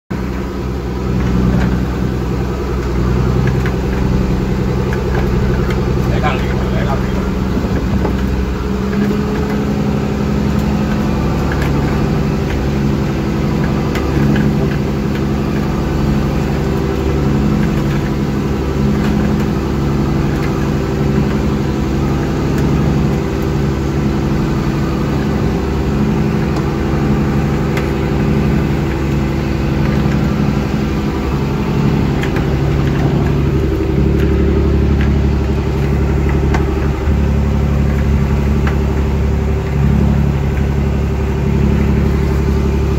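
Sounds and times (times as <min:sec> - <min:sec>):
boat engine droning: 0:00.1 - 0:42.9.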